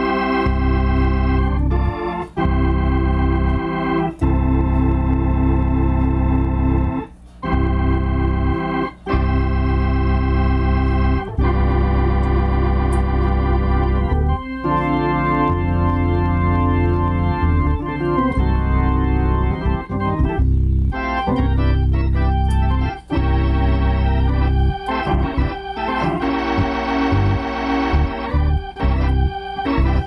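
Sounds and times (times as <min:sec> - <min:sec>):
organ playing sustained chords: 0:00.0 - 0:30.0.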